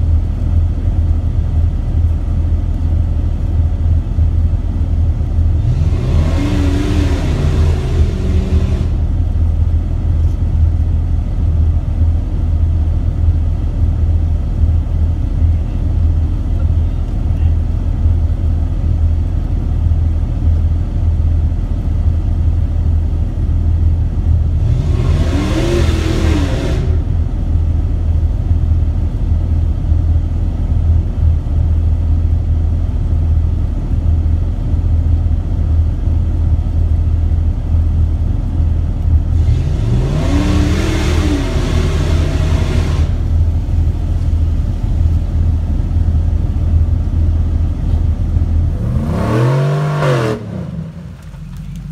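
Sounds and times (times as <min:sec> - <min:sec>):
car engine running and revving: 0:00.0 - 0:51.9.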